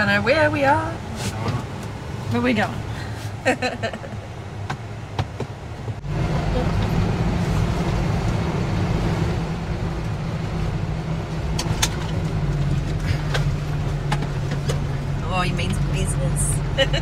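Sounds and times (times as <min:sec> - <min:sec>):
diesel truck engine running: 0:00.0 - 0:17.0
tyre and road noise: 0:00.0 - 0:17.0.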